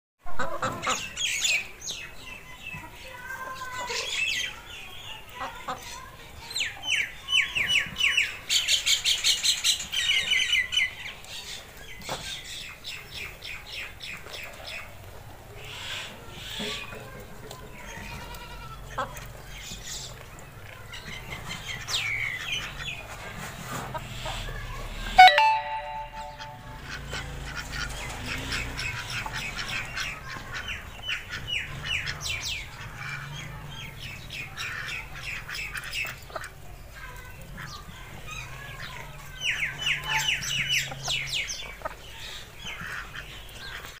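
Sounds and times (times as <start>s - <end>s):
ducks quacking: 0.3s - 1.2s, 26.1s - 33.8s, 39.9s - 44.0s
chickens clucking: 0.3s - 44.0s.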